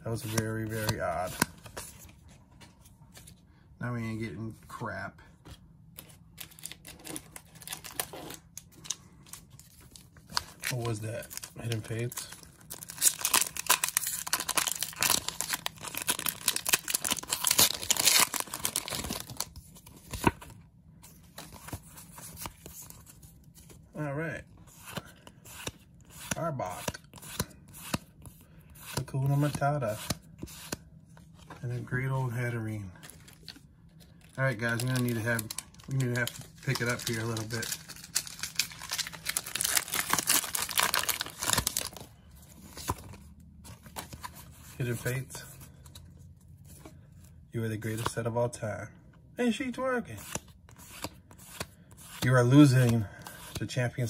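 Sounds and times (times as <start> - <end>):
foil wrapper tearing and crinkling: 11.6 - 19.5, 34.7 - 42.0
foil wrapper crackling: 34.7 - 42.0.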